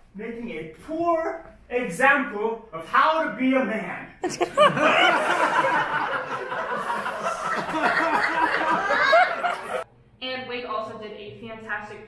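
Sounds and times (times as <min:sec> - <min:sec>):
audience laughing: 0:04.2 - 0:09.8.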